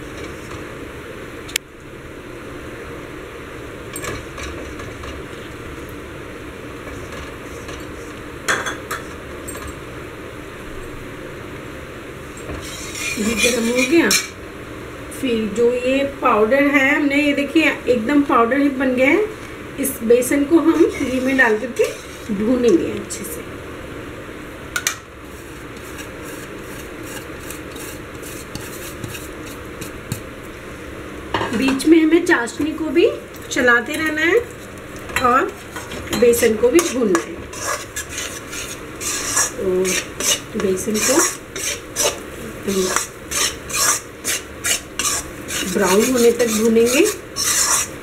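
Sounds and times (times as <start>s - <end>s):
flour sizzling in oil: 12.6s - 14.2s, 20.6s - 22.4s, 25.2s - 30.3s, 35.3s - 48.0s
metal spatula stirring in pan: 12.6s - 14.3s, 20.7s - 22.4s, 25.3s - 30.2s, 35.5s - 48.0s.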